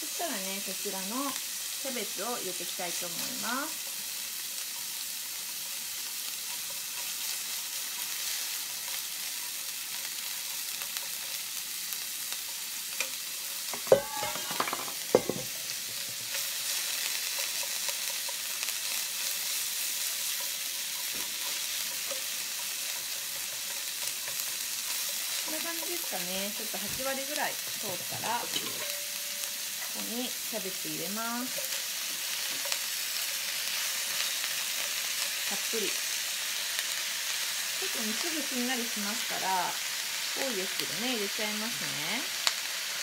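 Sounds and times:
meat sizzling in frying pan: 0.0 - 43.0
metal clanks with ring: 13.8 - 15.4, 28.4 - 29.5.

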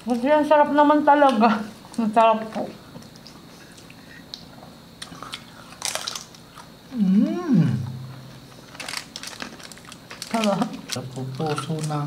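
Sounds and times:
crunching of fried pork: 5.0 - 6.8, 8.5 - 12.0.

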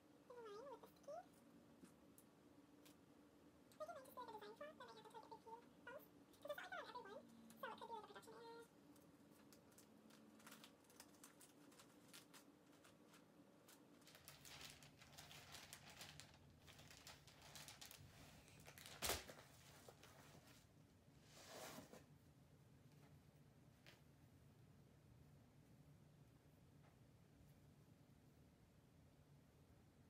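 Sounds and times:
wrapping materials rustling: 7.4 - 20.6.

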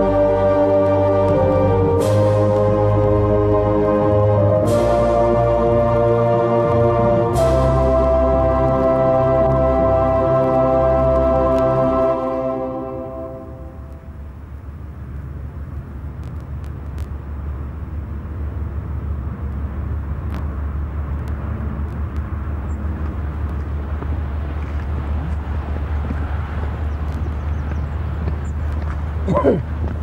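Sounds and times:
organ chord: 0.0 - 14.1
steady low rumble: 0.0 - 30.0
faint clicks: 21.1 - 25.4.

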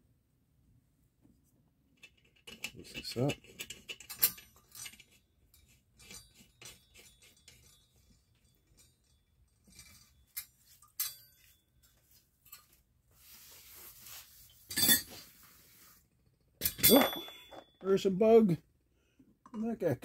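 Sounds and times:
paper towel rubbing on tiles: 13.1 - 16.0.

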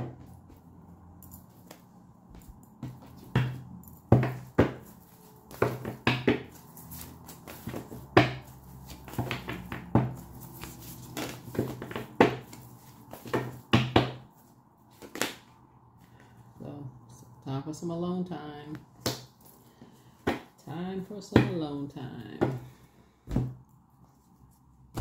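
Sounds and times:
cards being shuffled: 4.7 - 13.6, 14.4 - 15.5
cards slapping on table: 15.0 - 15.5.

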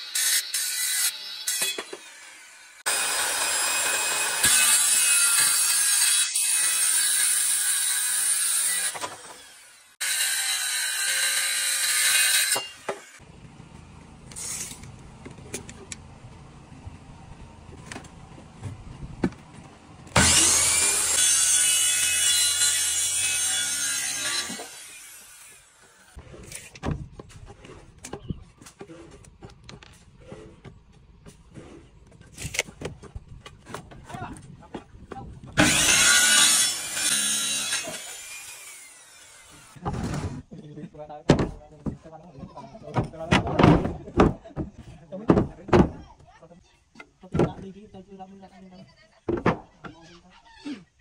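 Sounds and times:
circular saw cutting bamboo: 0.0 - 13.2, 20.1 - 26.8, 35.6 - 39.8.

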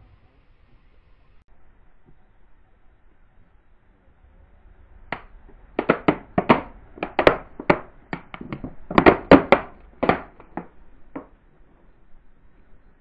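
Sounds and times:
plastic masks cracking under tyre: 5.1 - 11.4.

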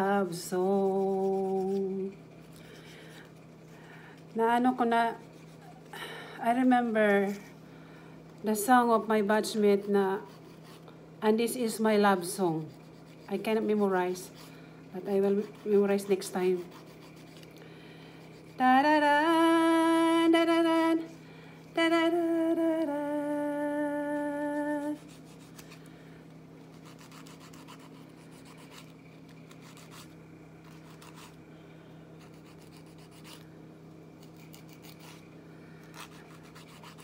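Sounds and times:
nail file rasping on fingernails: 0.7 - 2.6, 9.9 - 10.8, 12.6 - 14.5, 15.2 - 17.5, 25.0 - 25.8, 26.7 - 31.4, 32.2 - 33.4, 34.2 - 35.3, 35.9 - 37.0
woman humming: 18.6 - 21.1, 21.8 - 25.1.

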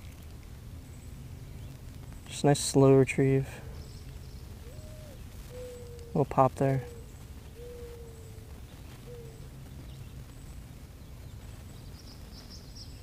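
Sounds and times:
steady low rumble: 0.0 - 13.0
small bird chirping: 3.7 - 6.2, 6.9 - 13.0.

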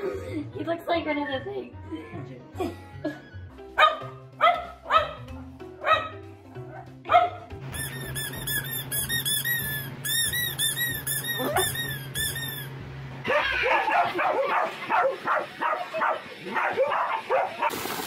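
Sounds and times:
dog barking: 3.8 - 7.5, 13.3 - 17.7
squeaky toy squeaking: 7.7 - 12.8
vacuum cleaner running: 8.4 - 18.0.

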